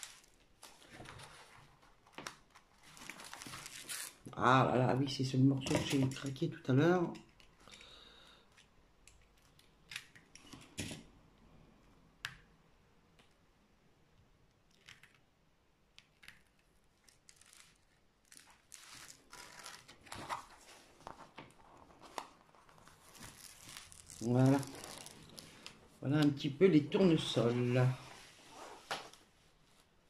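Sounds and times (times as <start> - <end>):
paper and plastic sheets crinkling: 0.0 - 4.4, 17.0 - 26.4.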